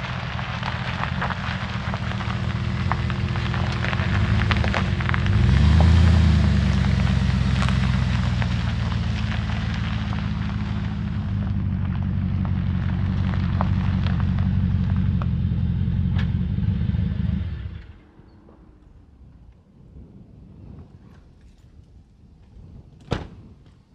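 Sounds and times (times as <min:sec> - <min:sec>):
tyres crackling on gravel: 0:00.0 - 0:18.0
pickup engine rumbling: 0:00.0 - 0:18.4.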